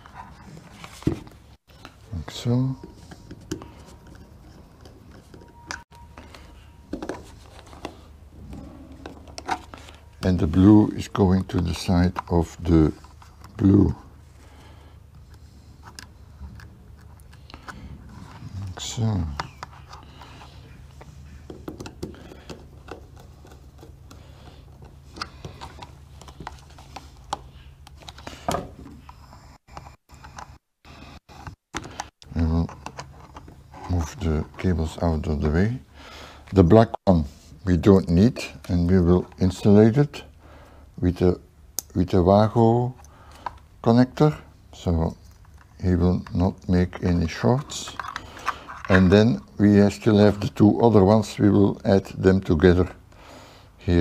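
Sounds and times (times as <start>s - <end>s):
wires being handled: 45.1s - 50.6s.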